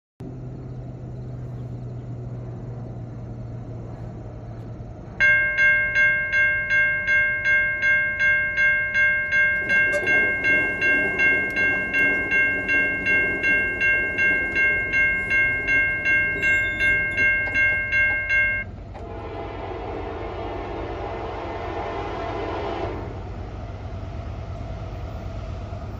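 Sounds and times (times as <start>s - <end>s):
approaching train: 0.2s - 25.9s
crossing warning bell ringing: 5.2s - 19.5s
train horn: 9.3s - 23.5s.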